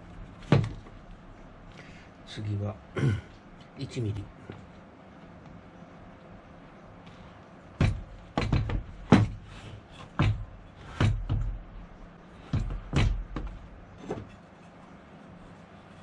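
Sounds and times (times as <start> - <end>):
planer knocking on wooden bench: 7.8 - 9.4, 10.1 - 11.6, 12.4 - 14.3.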